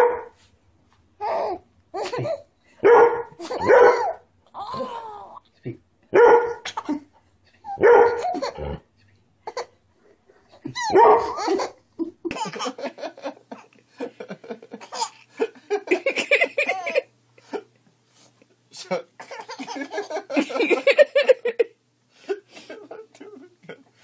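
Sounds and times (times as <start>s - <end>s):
dog barking: 0.0s - 0.4s, 2.8s - 4.2s, 6.2s - 6.6s, 7.8s - 8.3s, 10.9s - 11.4s
baby laughing: 1.2s - 2.5s, 3.4s - 5.5s, 10.6s - 13.0s, 14.8s - 17.1s, 19.2s - 21.5s
baby giggling and squealing: 10.6s - 11.8s.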